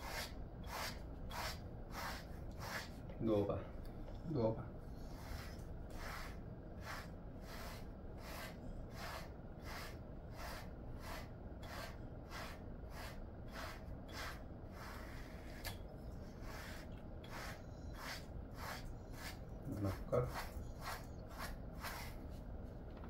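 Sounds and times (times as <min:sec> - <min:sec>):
brush swishing through dog fur: 0:16.4 - 0:22.4.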